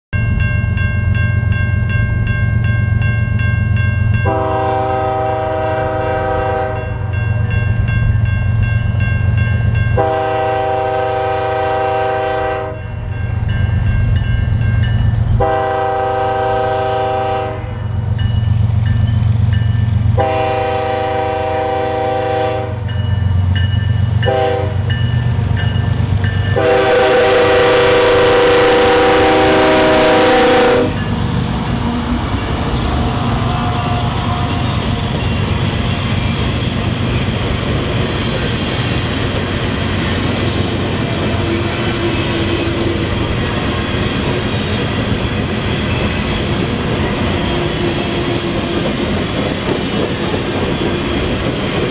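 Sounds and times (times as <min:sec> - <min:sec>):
passing train rushing: 0:00.2 - 0:51.9
locomotive air horn blasts: 0:04.2 - 0:07.1, 0:10.0 - 0:12.8, 0:15.4 - 0:17.9, 0:20.2 - 0:22.9, 0:24.2 - 0:24.9, 0:26.6 - 0:31.1, 0:33.2 - 0:34.8.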